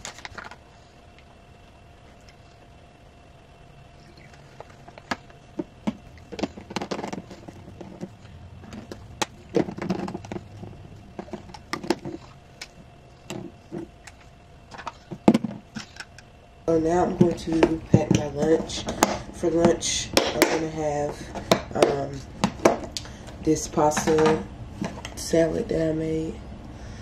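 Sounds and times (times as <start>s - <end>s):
plastic bottles clicking and knocking: 4.6s - 12.2s.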